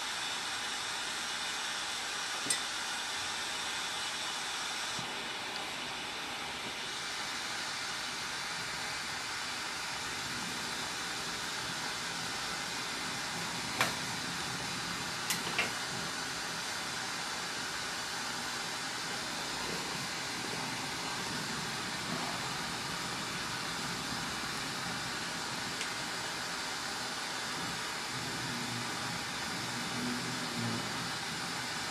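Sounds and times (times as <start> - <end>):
torch flame hissing: 0.0 - 31.9.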